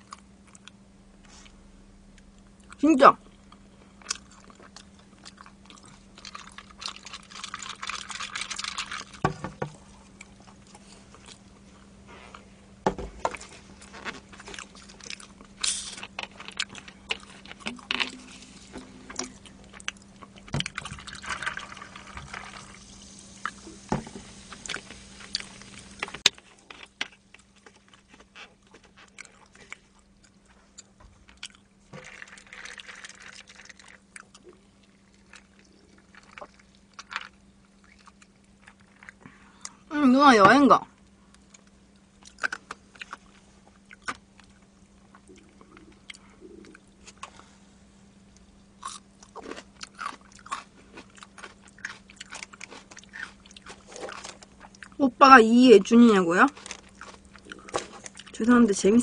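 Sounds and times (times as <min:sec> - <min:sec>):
cola pouring and fizzing: 0:20.7 - 0:24.2, 0:32.0 - 0:34.1.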